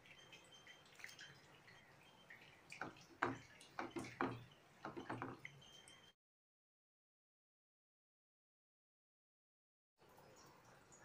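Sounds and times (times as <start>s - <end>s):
gravy simmering with faint popping: 0.0s - 6.1s
sharp clicks and knocks: 2.8s - 5.5s.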